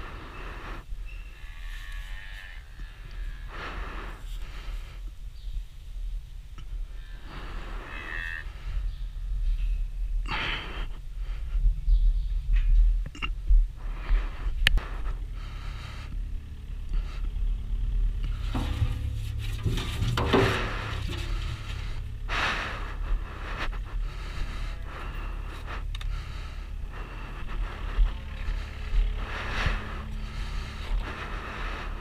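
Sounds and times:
diesel engine idling: 14.9s - 32.0s
scraping and shuffling in metal bucket: 18.2s - 24.0s.

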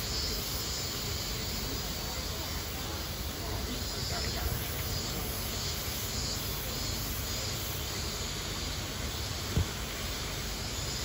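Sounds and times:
brief low thump: 9.5s - 9.8s.

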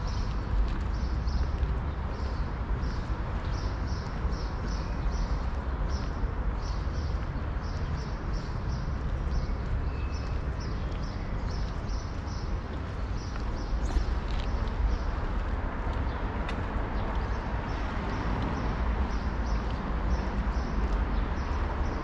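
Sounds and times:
footsteps on stone paving: 0.0s - 22.0s.

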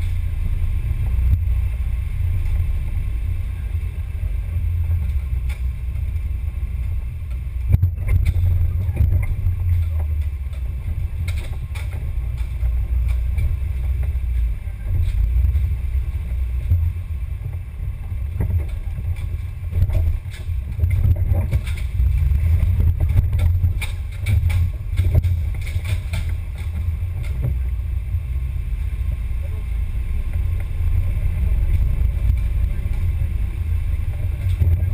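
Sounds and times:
vehicle low rumble: 0.0s - 34.9s.

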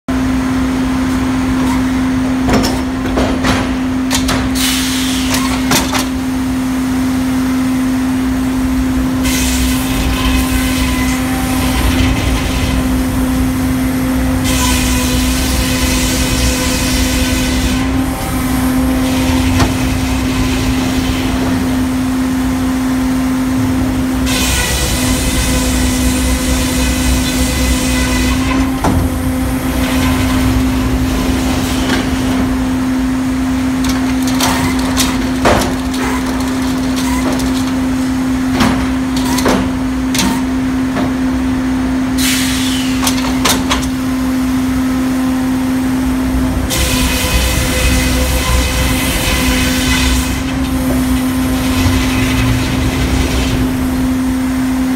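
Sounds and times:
metal clanks and knocks: 2.4s - 4.6s
circular saw humming: 8.2s - 33.7s, 44.2s - 54.9s.

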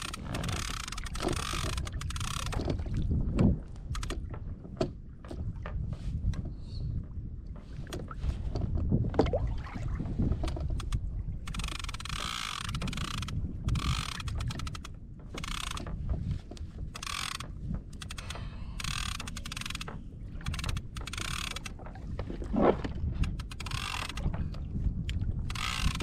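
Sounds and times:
fishing reel whirring: 0.0s - 2.6s, 11.5s - 14.8s, 17.0s - 17.4s, 18.1s - 19.9s, 20.5s - 21.7s, 23.5s - 24.2s, 25.5s - 26.0s
water noise: 0.0s - 16.2s, 17.0s - 26.0s
wind: 0.0s - 26.0s.

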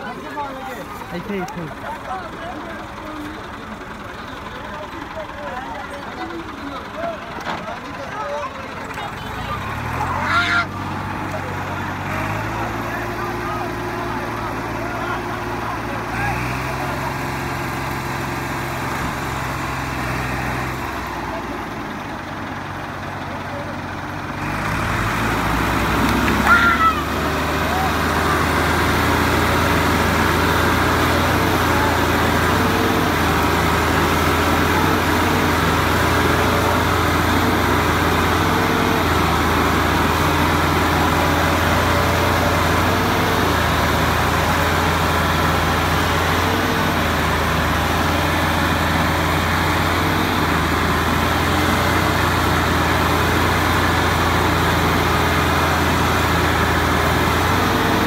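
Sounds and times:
tractor diesel engines under load: 0.0s - 58.0s.

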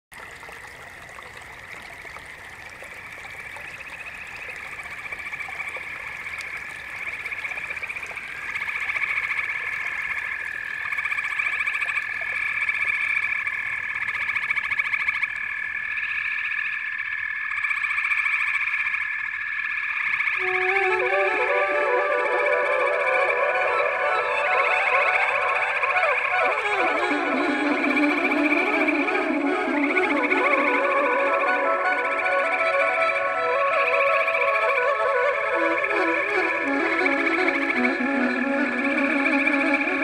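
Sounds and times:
frogs calling in chorus: 0.3s - 21.6s, 22.9s - 40.0s
steady high tone: 20.4s - 34.4s.

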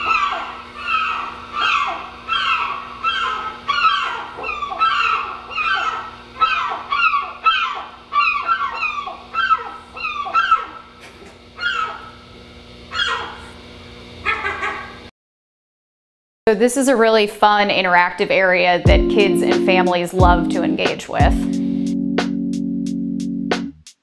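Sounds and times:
gulls crying over speakers: 0.0s - 11.0s, 11.6s - 12.2s, 12.9s - 13.4s.

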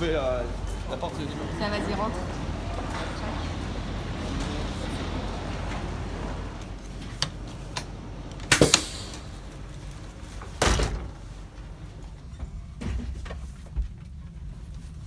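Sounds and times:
doors banging: 10.5s - 11.4s.

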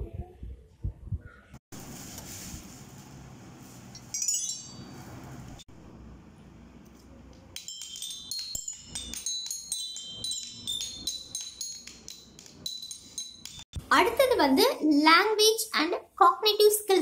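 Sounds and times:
toy xylophone notes: 7.6s - 13.7s.

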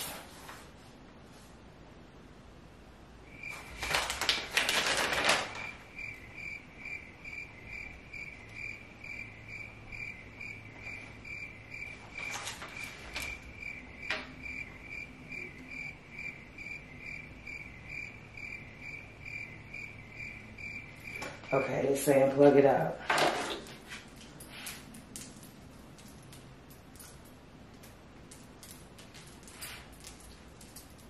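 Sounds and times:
paper sheets rustling: 3.5s - 5.9s, 11.9s - 13.5s.

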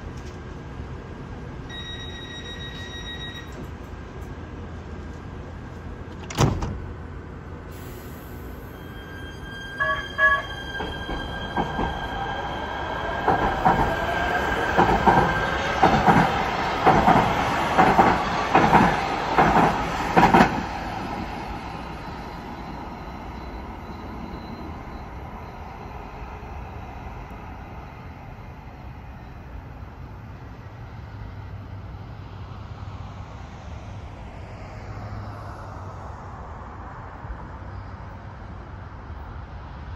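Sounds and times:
street traffic hum: 0.0s - 1.8s, 3.5s - 39.9s
train high steady whine: 0.2s - 6.1s, 7.0s - 39.9s
train wheels clacking on rail joints: 13.1s - 20.7s.

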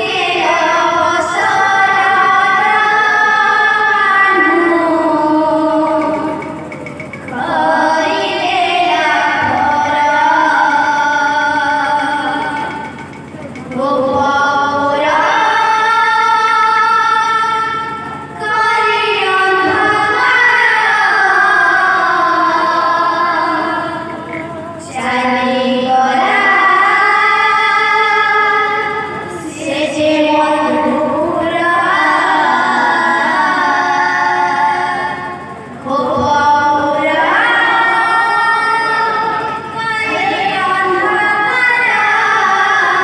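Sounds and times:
woman singing devotional song: 0.0s - 43.0s.

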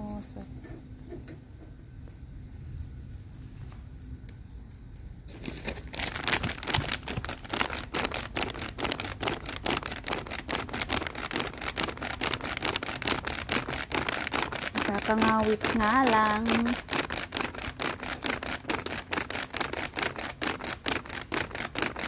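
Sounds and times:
hand fan flapping: 5.3s - 22.0s.

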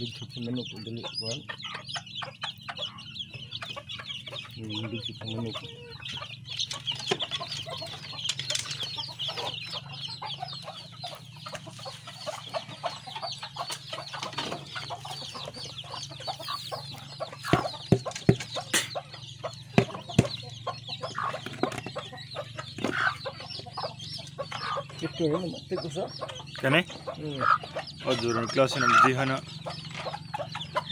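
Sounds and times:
chicks peeping: 0.0s - 30.9s
hens clucking: 0.0s - 30.9s
knocks on bamboo coop: 17.4s - 18.8s, 19.7s - 20.4s.

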